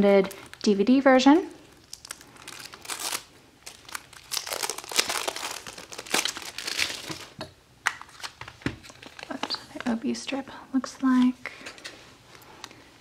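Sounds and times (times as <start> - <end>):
shrink wrap crackling: 0.0 - 10.0.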